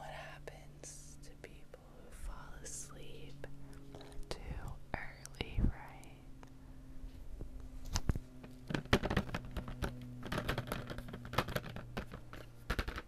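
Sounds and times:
fingernails tapping on cardboard box: 8.6s - 13.0s.

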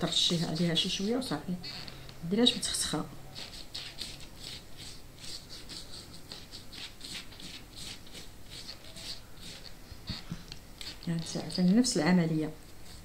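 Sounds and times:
pastry brush swishing: 2.6s - 13.0s.

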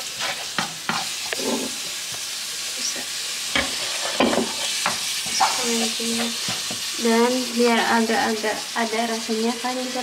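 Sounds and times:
wooden utensil scraping a pan: 0.0s - 1.9s, 3.5s - 6.9s
meat sauce sizzling in a frying pan: 0.0s - 10.0s.

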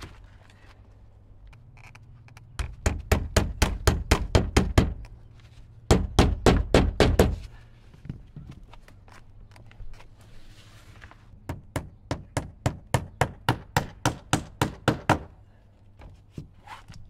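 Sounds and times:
hammer striking nail: 2.6s - 5.0s, 5.9s - 7.4s, 11.5s - 15.3s.

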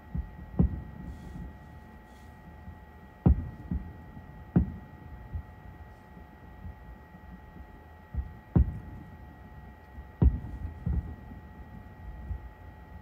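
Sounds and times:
faint steady hum: 0.0s - 13.0s
fireworks bursting with booms: 3.2s - 4.8s, 10.2s - 11.3s.

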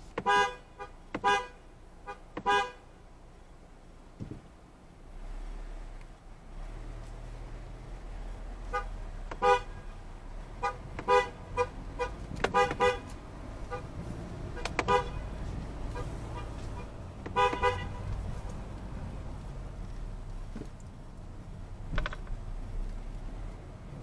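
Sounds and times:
car horn honking: 0.2s - 2.9s, 8.6s - 10.0s, 10.6s - 18.2s.

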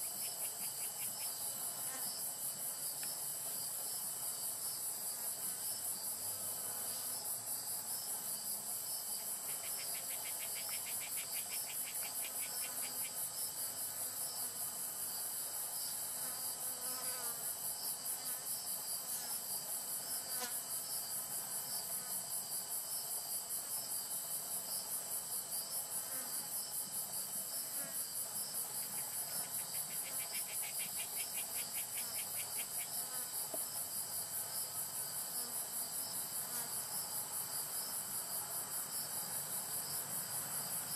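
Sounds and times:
fast ticking insect trill: 0.0s - 2.6s, 7.3s - 13.6s, 24.1s - 34.9s
insects trilling: 0.0s - 40.9s.

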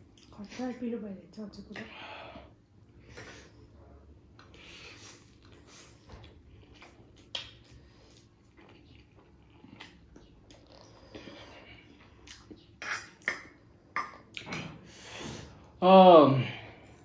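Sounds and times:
chewing: 4.4s - 14.5s.

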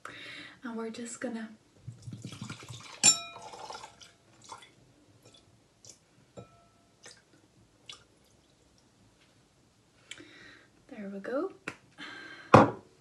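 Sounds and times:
liquid pouring into a glass: 1.9s - 5.4s
glass clinking: 2.9s - 3.9s, 6.4s - 6.9s.

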